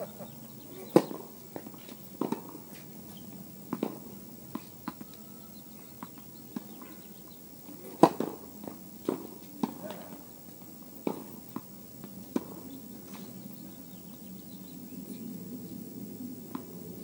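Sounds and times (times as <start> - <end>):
tennis balls bouncing on court: 0.0 - 10.2, 10.8 - 13.4
tennis balls struck by rackets: 0.0 - 13.4.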